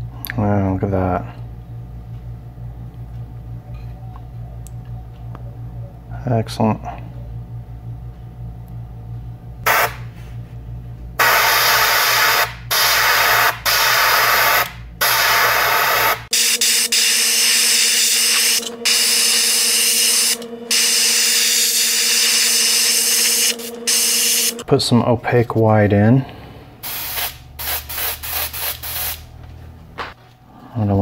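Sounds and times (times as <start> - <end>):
faint steady hum: 0.0 - 27.6
low steady hum: 0.0 - 28.0
airbrush spraying hiss: 26.8 - 29.2.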